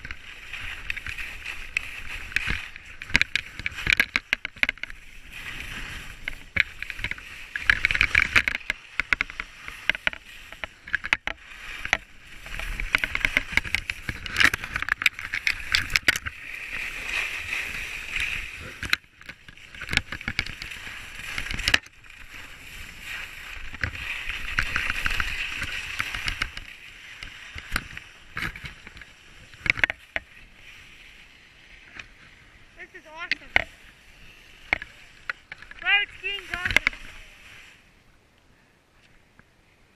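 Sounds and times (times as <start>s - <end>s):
skis scraping over snow: 0.0s - 38.0s
sharp clicks and knocks: 0.8s - 5.0s, 6.2s - 16.3s, 18.7s - 22.0s, 23.7s - 30.3s, 33.2s - 33.7s, 34.7s - 37.1s.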